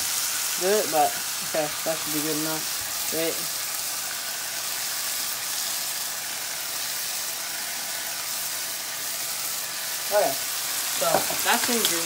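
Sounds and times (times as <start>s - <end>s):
chicken sizzling in oil: 0.0s - 12.0s.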